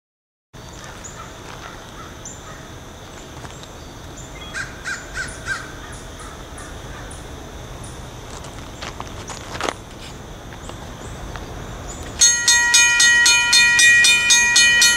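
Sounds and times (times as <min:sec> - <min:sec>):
crow cawing: 0:04.6 - 0:07.2.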